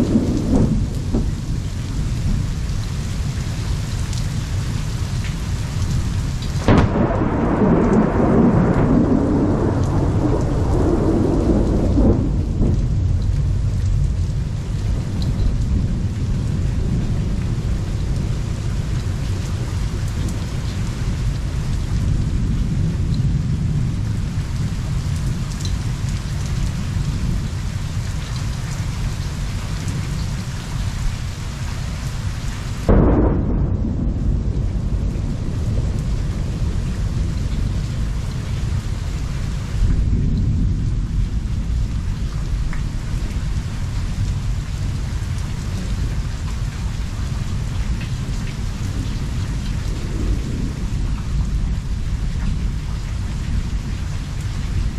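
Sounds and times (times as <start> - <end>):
sudden thunderclap: 0.0 - 1.6, 6.6 - 14.3, 32.8 - 38.9, 39.8 - 41.8, 48.9 - 52.6
low rumble of thunder: 0.0 - 54.9
steady rain: 0.0 - 54.9.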